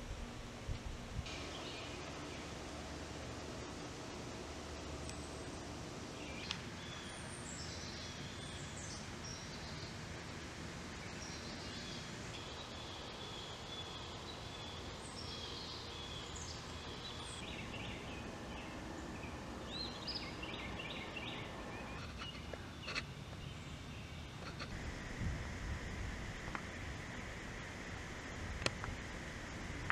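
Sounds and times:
background hiss: 0.0s - 29.9s
birds chirping: 1.3s - 4.0s, 4.6s - 10.0s, 10.9s - 24.8s.

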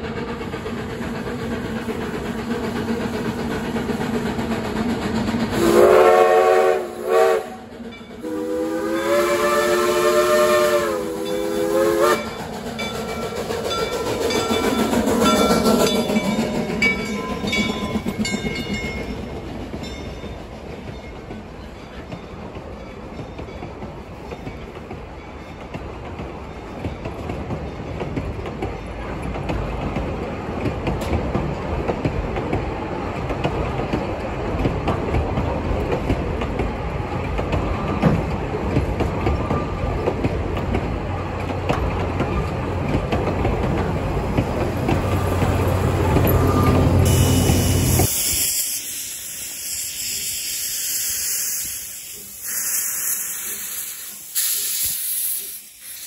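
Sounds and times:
steam hissing from locomotive: 0.0s - 19.8s, 44.9s - 56.0s
train coaches rumbling on rails: 0.0s - 56.0s.

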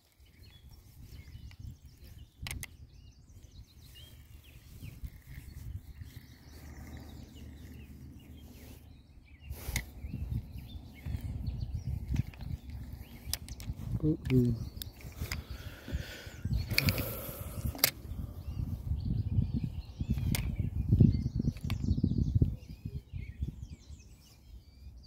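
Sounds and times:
faint bird chirps: 0.0s - 25.0s
sharp clicks: 12.0s - 15.6s, 16.5s - 18.1s.

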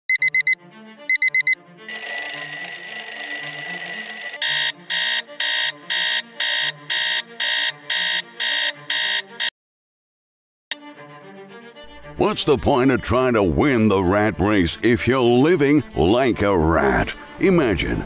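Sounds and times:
electronic alarm beeping: 0.1s - 9.5s
alarm clock ringing: 0.2s - 9.5s.

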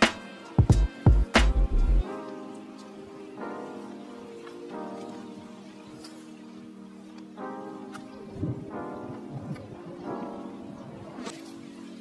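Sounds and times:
background music with drum beat: 0.0s - 2.0s.

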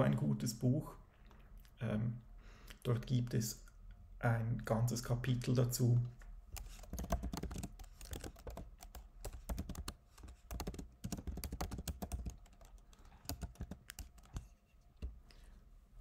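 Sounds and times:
computer keyboard typing: 6.6s - 14.5s.

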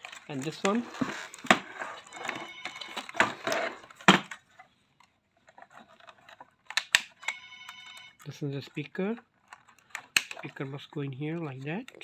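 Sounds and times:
plastic rustling and scraping: 0.0s - 12.0s
sharp plastic clicks: 6.0s - 8.1s, 9.2s - 10.7s.

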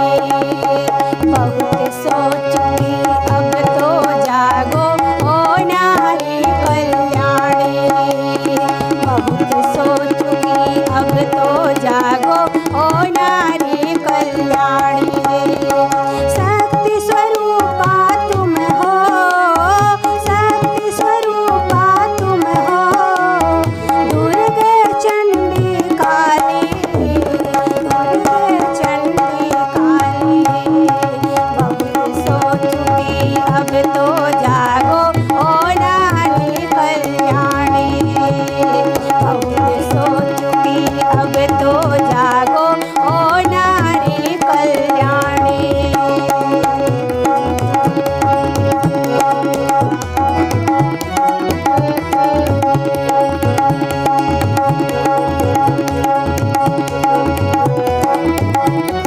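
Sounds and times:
harmonium drone and melody: 0.0s - 59.0s
tabla playing a rhythm: 0.0s - 59.0s.

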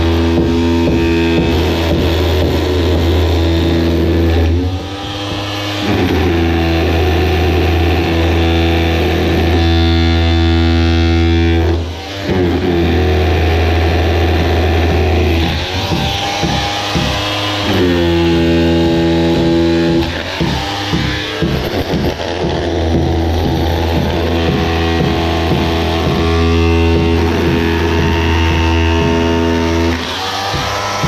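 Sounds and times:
electric chisel hammer breaking concrete: 0.0s - 31.0s.

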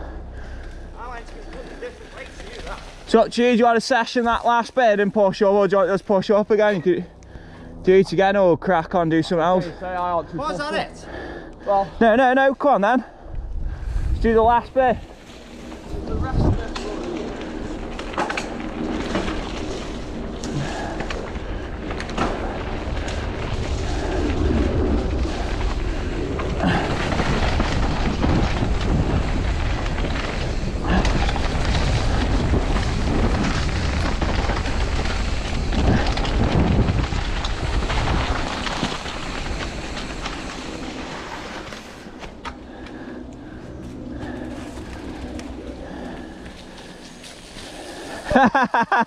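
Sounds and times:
tyres on loose ground: 0.0s - 49.0s
wind rumbling on microphone: 13.1s - 48.4s
bike rattling and knocking: 14.8s - 48.8s.

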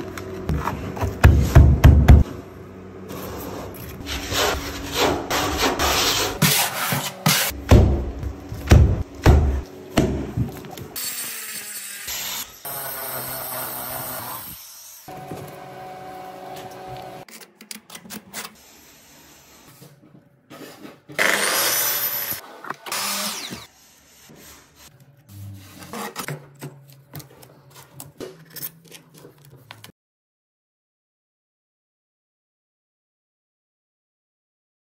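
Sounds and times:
power tool noise: 21.2s - 23.7s.

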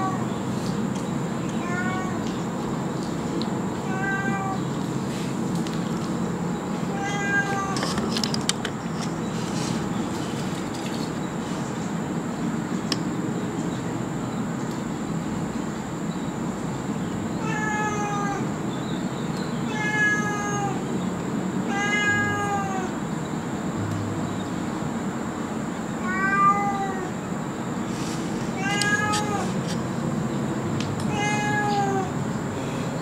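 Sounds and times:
cat meowing: 0.0s - 0.2s, 1.6s - 2.3s, 3.8s - 4.7s, 6.9s - 7.8s, 17.4s - 18.5s, 19.7s - 20.8s, 21.7s - 23.0s, 26.0s - 27.2s, 28.5s - 29.6s, 31.1s - 32.2s.

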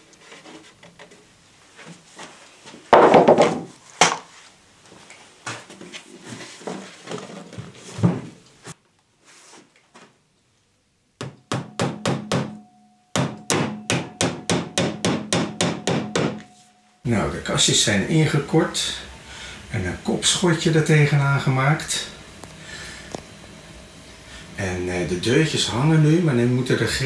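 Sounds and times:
wooden panels knocking on workbench: 2.9s - 4.2s, 13.2s - 16.5s
hammer tapping a nail: 11.2s - 12.6s, 13.2s - 16.4s.

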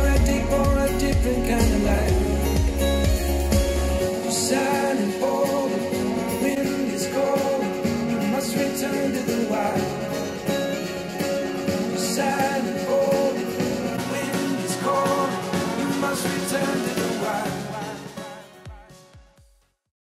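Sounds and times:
rock song through speakers: 0.0s - 19.5s.

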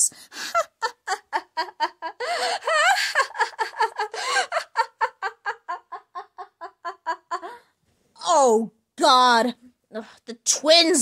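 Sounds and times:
high-pitched cackling laugh: 0.4s - 7.6s.

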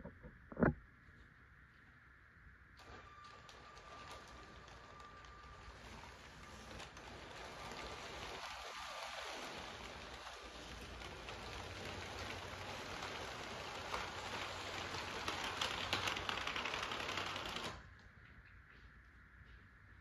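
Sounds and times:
toy train wheels clicking on track: 2.8s - 17.8s.

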